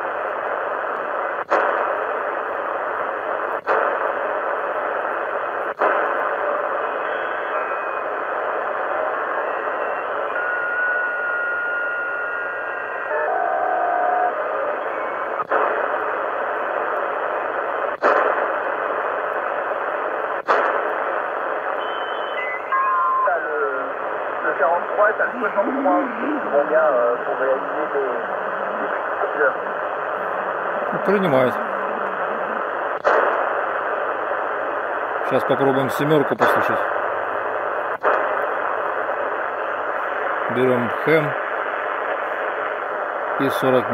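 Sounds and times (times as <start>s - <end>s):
radio static hiss: 0.0s - 43.9s
whistling radio tones: 0.1s - 43.9s
audio dropout click: 0.9s - 1.9s, 20.4s - 21.0s.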